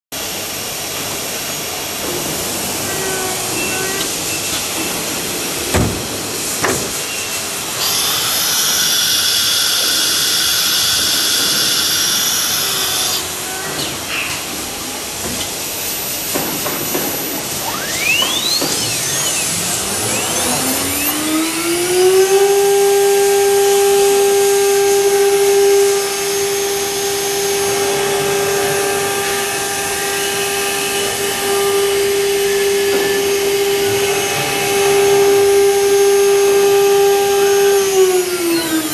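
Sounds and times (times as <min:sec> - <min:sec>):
router spindle whining: 0:07.5 - 0:14.4, 0:15.6 - 0:38.9
tool changer whine: 0:17.0 - 0:38.9.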